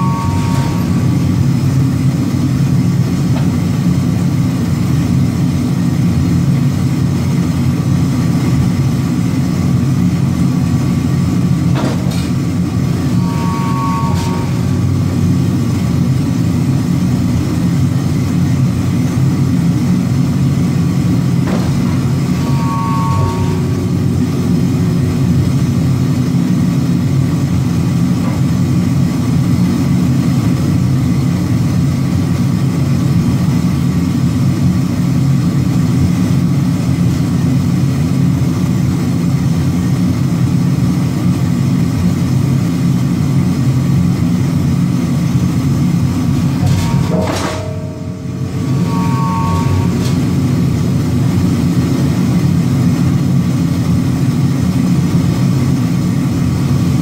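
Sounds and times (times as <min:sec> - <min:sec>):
brief mechanical whine: 0:00.0 - 0:01.1, 0:13.0 - 0:15.0, 0:21.5 - 0:24.0, 0:46.5 - 0:50.4
forging press droning: 0:00.0 - 0:57.0.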